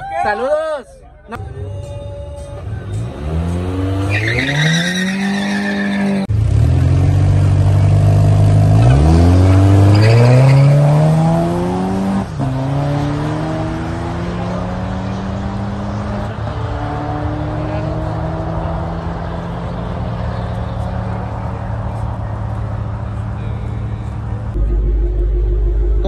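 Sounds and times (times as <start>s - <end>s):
engines accelerating through gears: 2.6s - 26.0s
car engine revving: 2.7s - 26.0s
tyres squealing: 4.0s - 6.3s.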